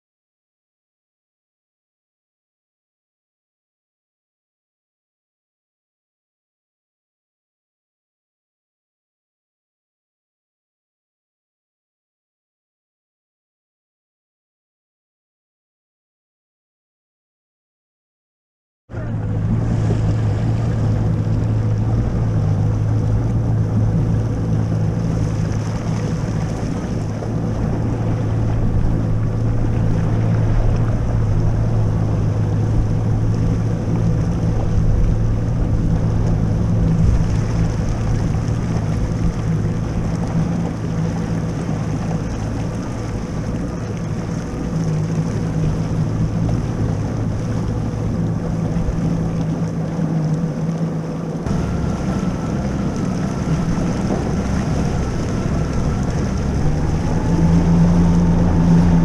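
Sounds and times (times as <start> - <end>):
jet ski engine running: 18.9 - 59.0
wind noise on microphone: 19.0 - 49.4, 51.4 - 59.0.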